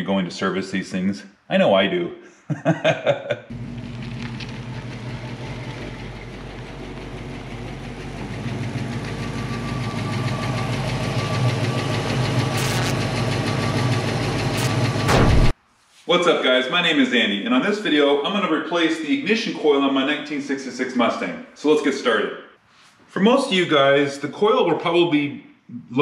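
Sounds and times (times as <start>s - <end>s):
car engine running: 3.5s - 15.5s.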